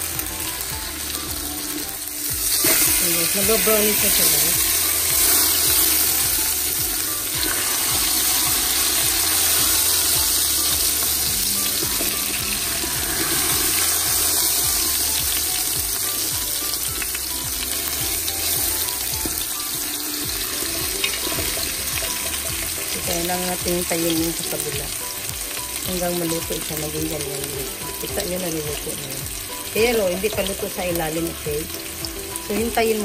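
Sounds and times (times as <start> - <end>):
beef sizzling in hot oil: 0.0 - 33.0
tongs turning meat: 2.6 - 15.7.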